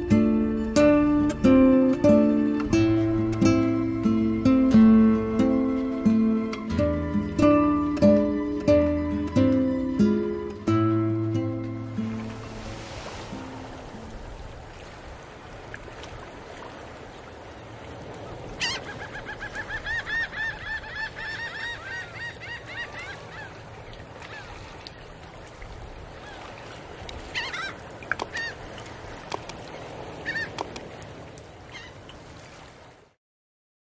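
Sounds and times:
bird calling: 18.6 - 24.6, 27.3 - 28.7, 30.2 - 30.8, 31.7 - 32.0.

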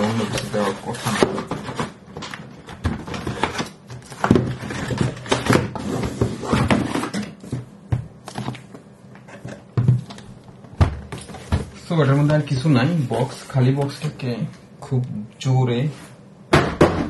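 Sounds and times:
cardboard scraping and rustling: 0.0 - 7.5.

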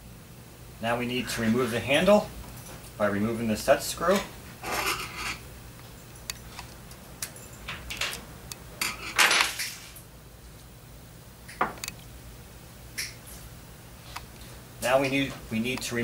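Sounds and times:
metal scrape: 4.6 - 5.4.

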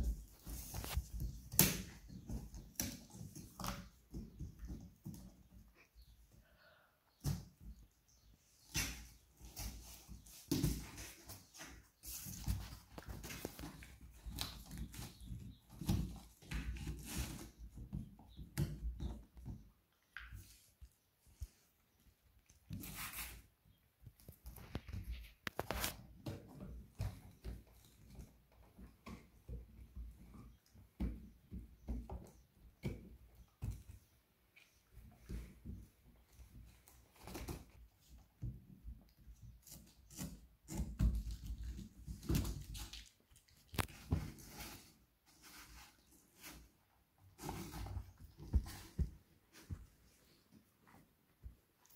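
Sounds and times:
kitten scratching in cardboard box: 8.6 - 18.4, 22.8 - 23.5, 39.3 - 49.8
cardboard box rustling and scraping: 43.9 - 49.7.

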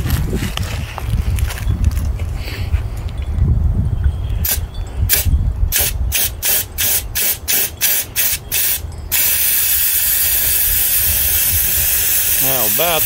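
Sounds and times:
spray gun hissing: 6.2 - 13.0.

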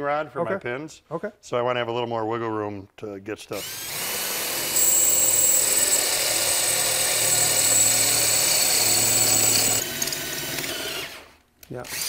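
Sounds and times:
cordless drill whining: 3.5 - 12.0.

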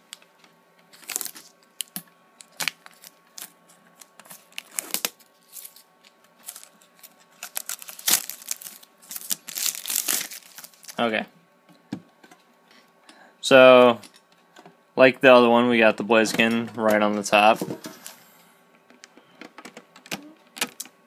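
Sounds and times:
plastic shrink wrap tearing: 1.0 - 5.8, 6.4 - 11.0.

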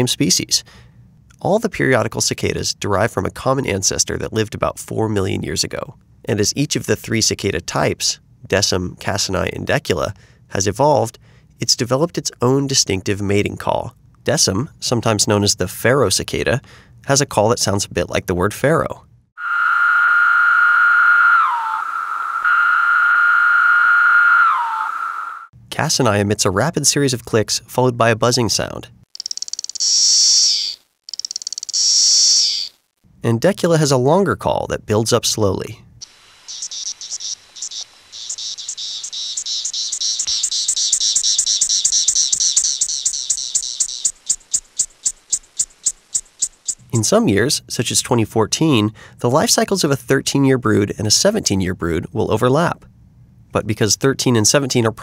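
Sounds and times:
cicada buzzing call: 19.4 - 25.5, 29.2 - 32.8, 36.0 - 46.9.

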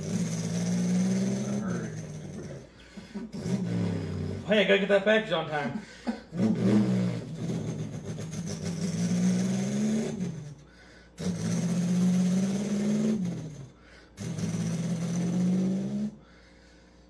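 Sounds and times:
man imitating truck engine: 0.0 - 16.3.

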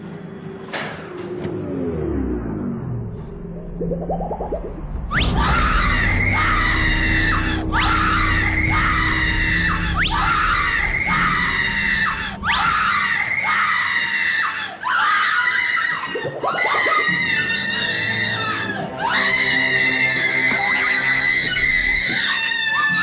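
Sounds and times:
woman screaming: 10.3 - 19.5.

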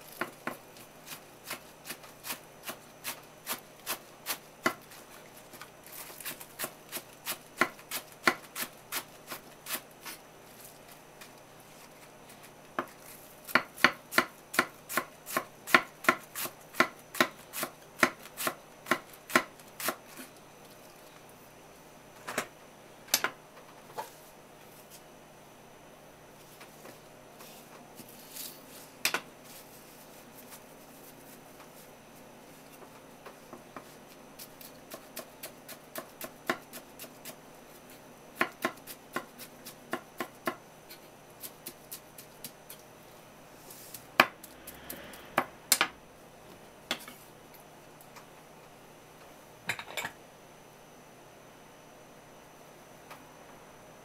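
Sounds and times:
knife chopping on wooden board: 6.2 - 10.2, 12.8 - 20.0, 34.9 - 37.4, 38.4 - 40.6.

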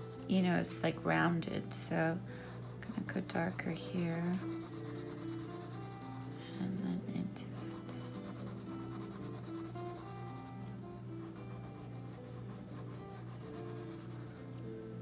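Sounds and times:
soft guitar music: 0.0 - 15.0
pencil scratching on paper: 2.5 - 6.6, 7.6 - 14.6.

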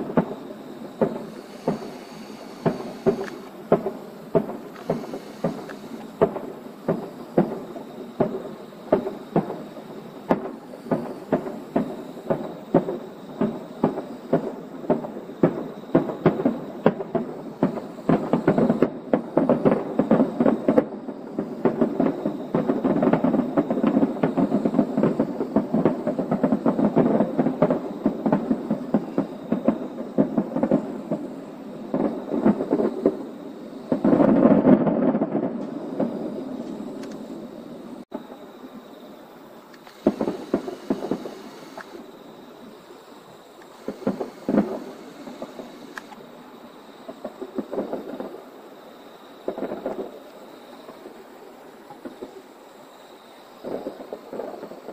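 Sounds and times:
firework shells bursting: 0.0 - 37.4, 39.7 - 42.0, 43.5 - 46.4.

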